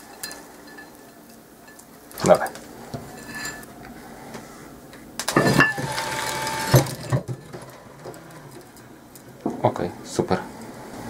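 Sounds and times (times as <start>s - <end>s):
wiper motor whining: 5.2s - 8.9s.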